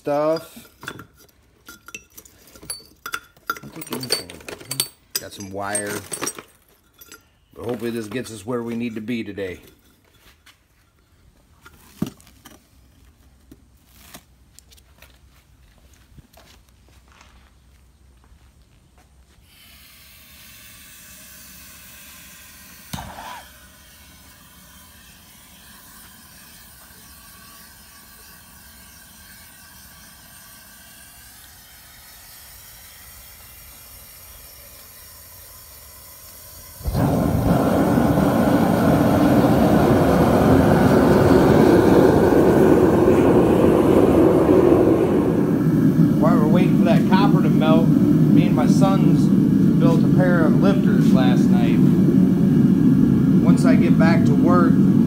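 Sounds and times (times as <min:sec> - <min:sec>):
burner rushing at full blast: 0:36.7 - 0:55.0
burner lighting whoosh: 0:36.8 - 0:55.0.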